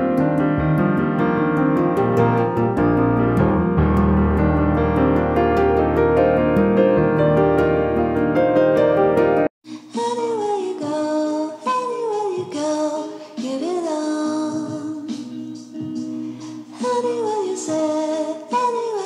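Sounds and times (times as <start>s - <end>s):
background music with singing: 9.7s - 19.0s.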